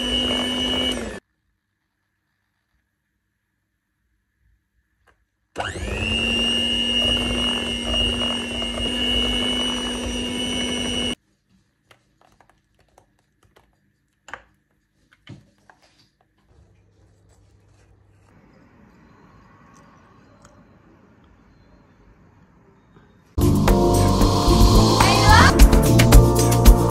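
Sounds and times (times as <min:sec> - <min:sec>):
electric hand mixer whirring: 0:00.0 - 0:01.2, 0:05.6 - 0:11.2, 0:23.4 - 0:25.6.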